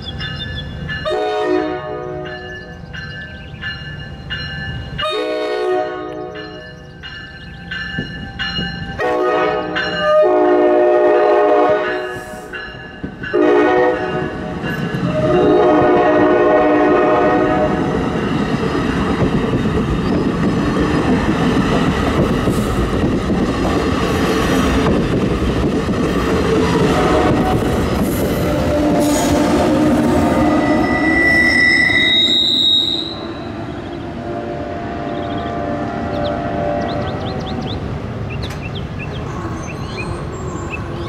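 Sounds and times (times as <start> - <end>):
electric locomotive whine: 0.0 - 41.0
train horn: 1.0 - 2.4, 5.0 - 6.4, 9.0 - 12.6, 13.3 - 18.0, 26.6 - 27.8, 28.4 - 37.5.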